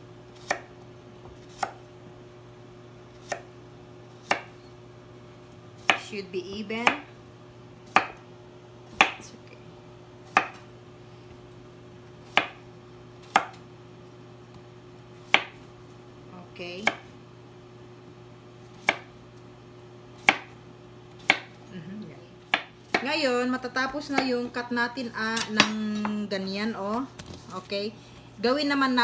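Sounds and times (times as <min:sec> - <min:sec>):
knife chopping on wooden board: 0:00.4 - 0:01.8, 0:03.2 - 0:03.5, 0:04.2 - 0:04.6, 0:05.8 - 0:06.1, 0:07.9 - 0:08.2, 0:09.0 - 0:09.3, 0:10.3 - 0:10.7, 0:12.3 - 0:12.6, 0:13.2 - 0:13.6, 0:15.3 - 0:15.7, 0:16.8 - 0:17.1, 0:18.8 - 0:19.2, 0:20.2 - 0:20.6, 0:21.2 - 0:21.6, 0:22.5 - 0:23.1.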